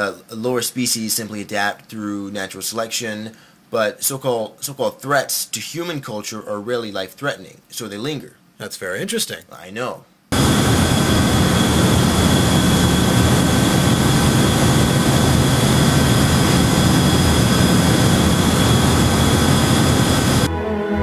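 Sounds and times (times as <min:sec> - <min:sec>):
cooling tower rushing roar: 0:10.3 - 0:20.5
high machinery whine: 0:10.3 - 0:20.5
low machinery hum: 0:10.3 - 0:20.5.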